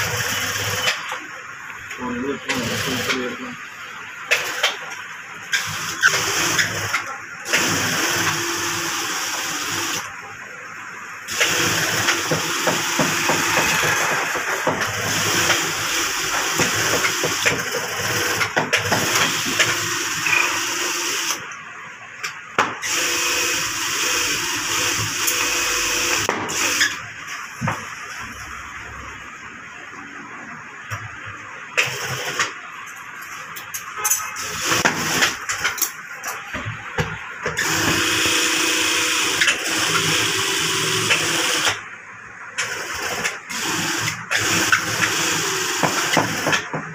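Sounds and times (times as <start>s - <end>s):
industrial sewing machine running: 0.0s - 1.3s, 2.0s - 3.6s, 4.2s - 10.2s, 11.3s - 21.5s, 22.8s - 27.0s, 31.8s - 32.6s, 34.4s - 35.8s, 37.6s - 41.9s, 42.5s - 46.8s.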